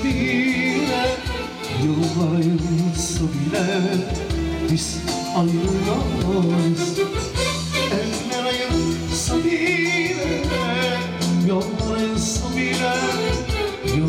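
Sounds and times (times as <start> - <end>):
bass: 0.0 - 14.0
keyboard: 0.0 - 14.0
person singing: 0.0 - 14.0.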